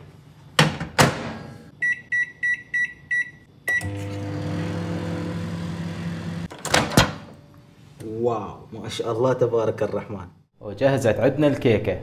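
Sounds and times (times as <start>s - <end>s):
microwave oven humming: 3.5s - 6.6s.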